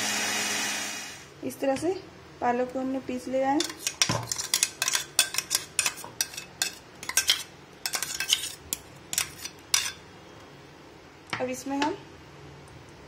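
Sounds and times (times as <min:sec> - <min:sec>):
metal spoon scraping a steel jar: 0:03.6 - 0:10.0.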